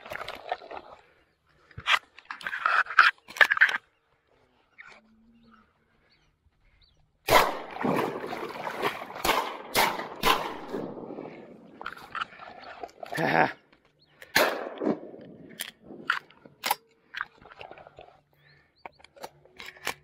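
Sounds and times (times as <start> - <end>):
shotguns firing: 7.3 - 8.3, 9.1 - 11.3, 14.3 - 16.0.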